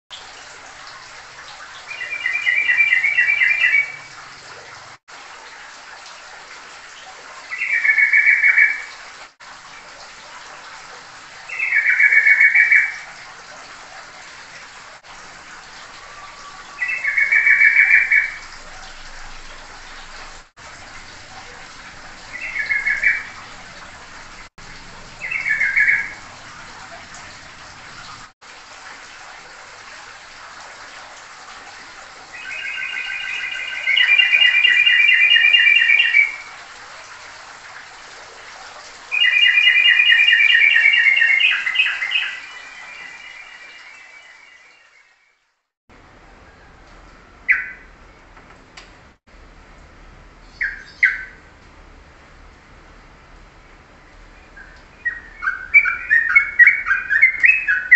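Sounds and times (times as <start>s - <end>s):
songbird chirping and trilling: 1.9s - 4.1s, 7.5s - 8.9s, 11.5s - 13.0s, 16.0s - 18.4s, 22.3s - 23.4s, 25.2s - 26.2s, 32.4s - 36.5s, 39.1s - 45.2s, 47.5s - 47.9s, 50.4s - 51.4s, 54.4s - 57.9s.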